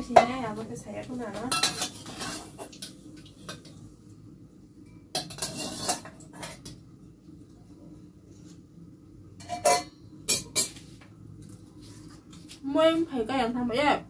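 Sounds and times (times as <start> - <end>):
pots and utensils clattering: 1.3 - 3.8, 5.1 - 6.8, 9.4 - 10.8.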